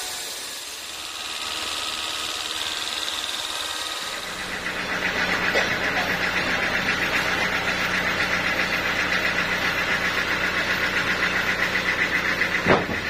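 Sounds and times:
sawmill engine idling: 0.0 - 13.0.

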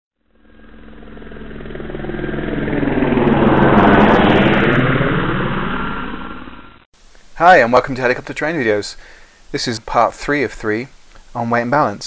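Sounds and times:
helicopter flying past: 0.2 - 6.9.

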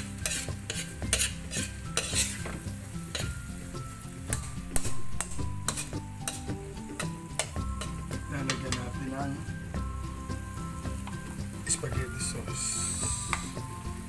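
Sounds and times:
utensil scraping pan: 0.0 - 3.4, 4.8 - 8.9
food sizzling in frying pan: 0.0 - 14.0.

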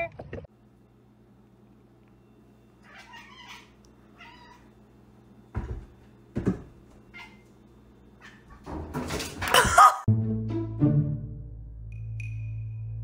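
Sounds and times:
cat meowing: 2.8 - 4.7.

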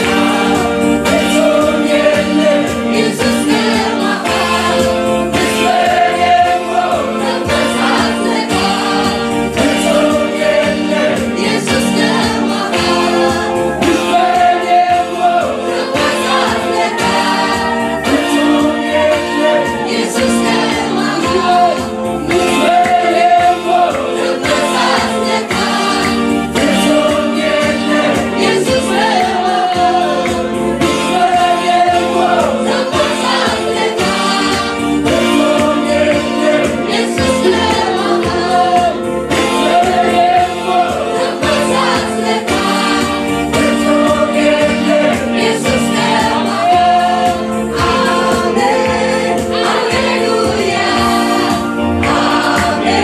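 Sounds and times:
choir singing gospel song: 0.0 - 53.0
keyboard accompaniment: 0.0 - 53.0
steady beat: 0.0 - 53.0.

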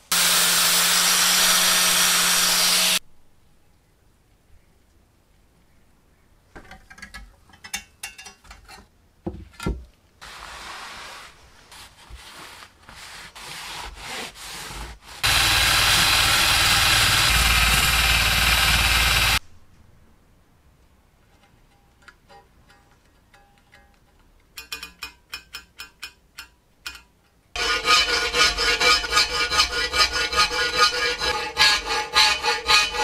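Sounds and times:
loud steady machine noise: 15.2 - 19.4
saw blade clinking: 27.6 - 33.0.

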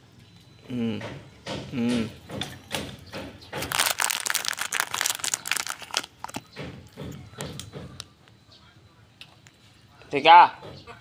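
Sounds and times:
plastic snack packet crinkling: 3.6 - 6.5.

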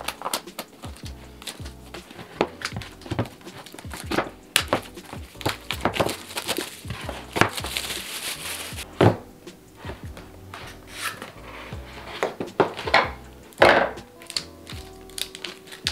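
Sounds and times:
plastic wrap crinkling and tearing: 0.0 - 8.8, 14.1 - 15.9
fingers tapping and scraping box: 0.0 - 9.2, 9.8 - 15.9.

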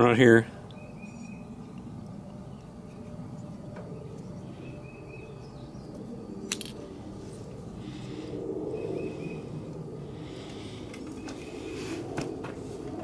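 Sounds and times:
faint bird trill: 0.7 - 1.7, 3.9 - 6.5.

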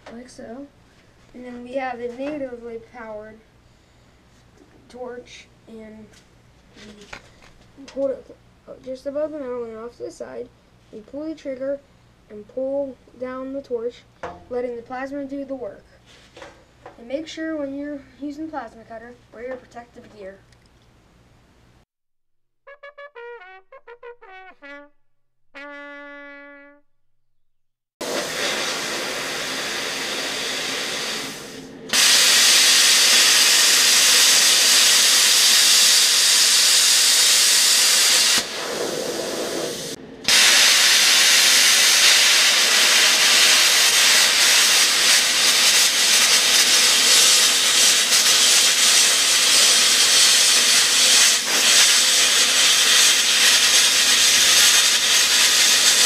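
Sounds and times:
brass fanfare: 22.6 - 26.9
plasma cutter hissing: 28.0 - 56.0.

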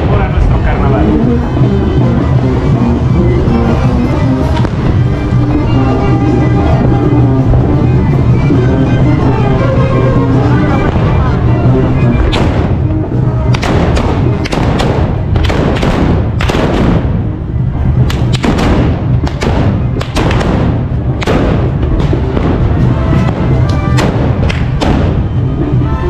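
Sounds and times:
band music: 0.0 - 15.4, 20.8 - 26.0
musket shots: 12.2 - 12.8, 13.5 - 17.2, 18.1 - 22.6, 23.9 - 25.2.

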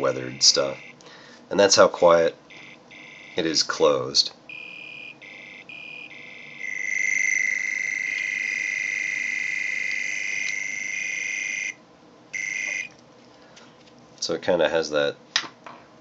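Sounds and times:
high pulsing electronic tone: 0.0 - 1.0, 2.5 - 3.6, 4.5 - 11.8, 12.4 - 12.9.

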